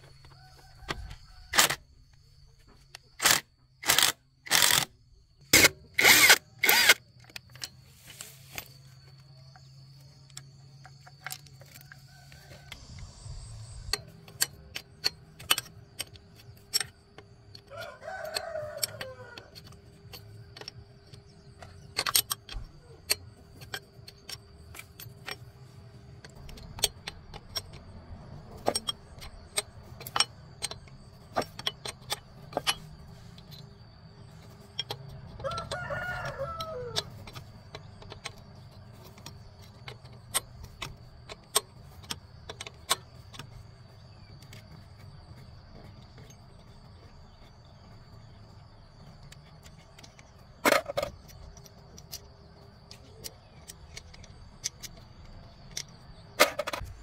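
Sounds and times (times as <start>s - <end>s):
rooster crowing: 0.2s - 1.7s, 17.6s - 19.6s, 35.4s - 37.2s
spanner clinking on metal: 12.9s - 57.0s.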